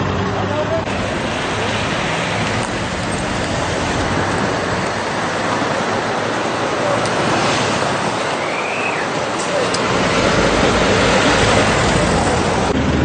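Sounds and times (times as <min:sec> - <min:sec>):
road traffic passing: 0:00.0 - 0:13.0.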